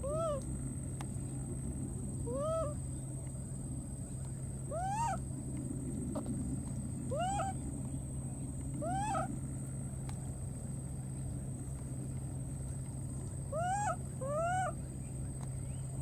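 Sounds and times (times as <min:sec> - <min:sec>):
baby monkey crying: 0:00.0 - 0:00.4, 0:02.3 - 0:02.8, 0:04.7 - 0:05.2, 0:07.1 - 0:07.6, 0:08.8 - 0:09.3, 0:13.5 - 0:14.8.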